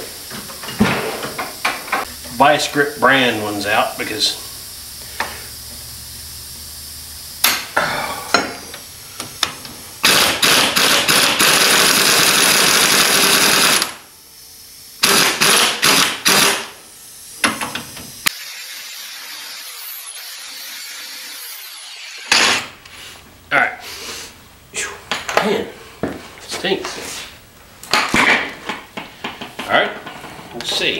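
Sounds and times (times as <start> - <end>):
impact wrench hammering: 7.4 - 8.7, 9.4 - 14.0, 15.0 - 16.8, 22.3 - 22.8
angle grinder whining: 18.2 - 23.1.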